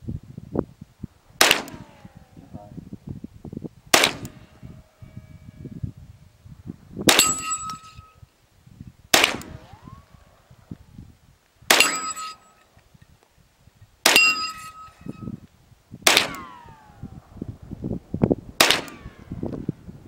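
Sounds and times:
rifle shots: 1.4 - 2.4, 3.9 - 4.5, 9.1 - 10.1, 11.7 - 12.5, 16.1 - 17.0, 18.6 - 19.4
short ringing tone: 4.3 - 6.3, 7.2 - 8.3, 11.9 - 12.7, 14.2 - 15.4.

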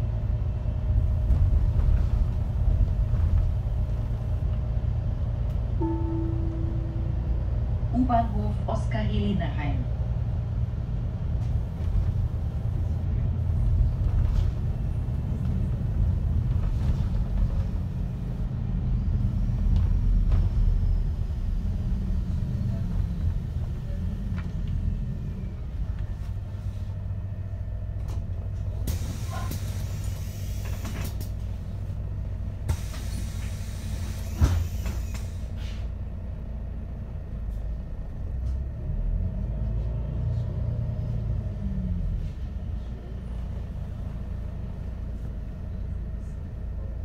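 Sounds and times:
bus engine and road rumble: 0.0 - 47.0
air brakes hissing: 28.8 - 31.2, 32.7 - 35.9.

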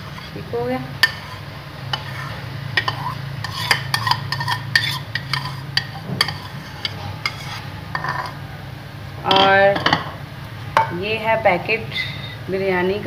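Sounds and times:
spoon scraping ceramic bowl: 0.0 - 0.4, 1.0 - 8.4
steady low hum: 0.0 - 13.0.

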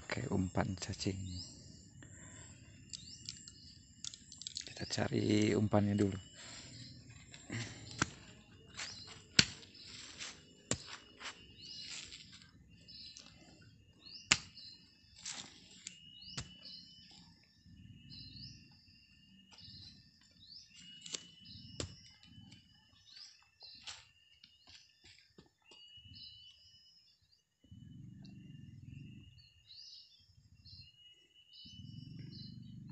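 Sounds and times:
birds chirping: 0.0 - 32.9
dirt scraping and crumbling: 6.0 - 13.4, 15.1 - 16.5
hoe striking soil: 7.5 - 12.4, 14.2 - 16.8.

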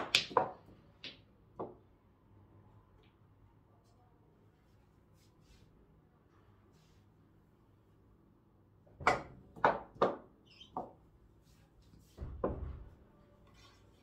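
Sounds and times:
pool balls knocking: 0.0 - 1.8, 9.0 - 10.9.

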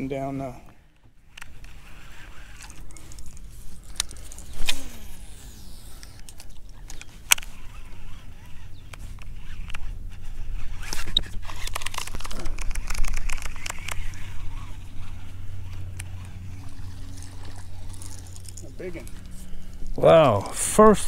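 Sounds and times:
fishing reel whirring: 1.2 - 20.4
fishing tackle clicks and knocks: 11.4 - 14.2.

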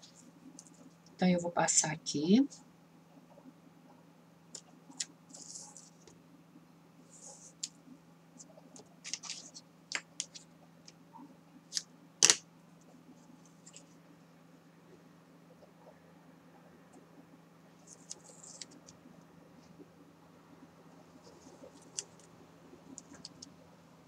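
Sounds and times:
tape and roll clicks: 11.7 - 12.4.

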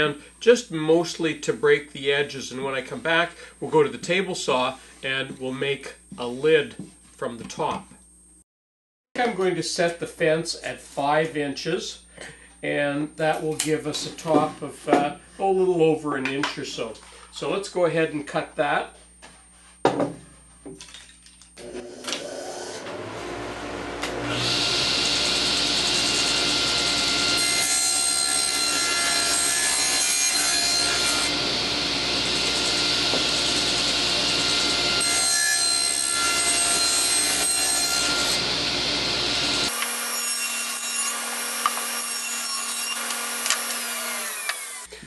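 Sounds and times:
table saw cutting plywood: 21.6 - 44.9
saw motor coming up to speed: 42.9 - 44.9.

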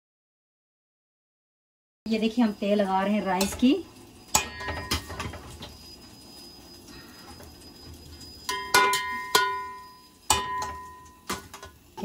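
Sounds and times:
metal spoon knocking on pot: 4.3 - 5.4, 8.5 - 11.8.

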